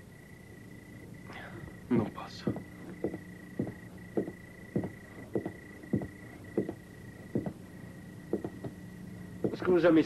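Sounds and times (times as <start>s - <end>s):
low hum: 0.0s - 10.0s.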